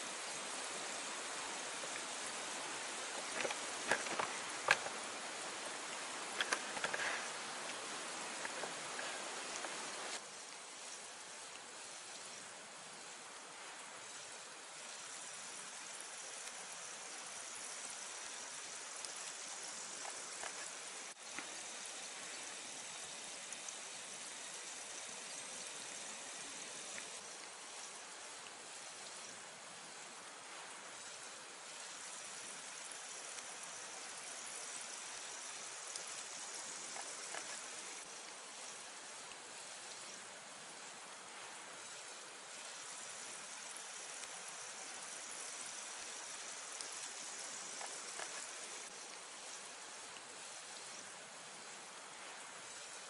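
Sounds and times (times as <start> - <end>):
steady hiss: 0.0 - 53.0
campfire crackling and popping: 1.8 - 14.8, 15.8 - 17.1, 35.8 - 40.2, 46.0 - 51.0.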